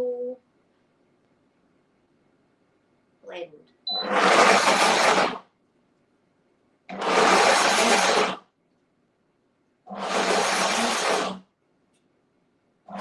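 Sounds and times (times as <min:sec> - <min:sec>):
blender motor pulsing: 0:04.0 - 0:05.5, 0:06.9 - 0:08.5, 0:09.9 - 0:11.5.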